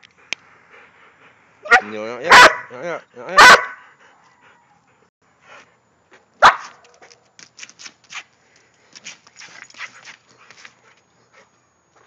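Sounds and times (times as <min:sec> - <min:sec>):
dog barking: 0:01.6 - 0:03.8, 0:06.4 - 0:06.7.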